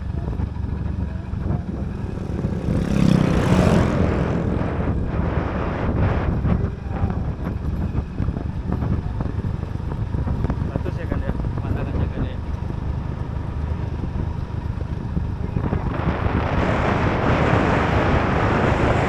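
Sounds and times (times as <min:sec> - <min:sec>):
motorcycle engine running: 0:00.0 - 0:19.0
wind on microphone: 0:00.0 - 0:19.0.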